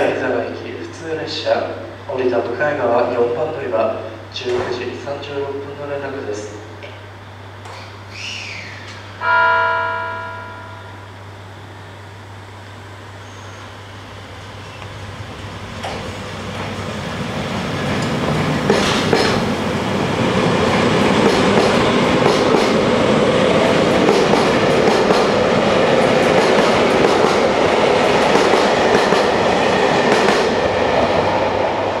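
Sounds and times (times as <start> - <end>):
train wheels clacking over rail joints: 17.6 - 19.6, 20.8 - 23.0, 23.9 - 30.6.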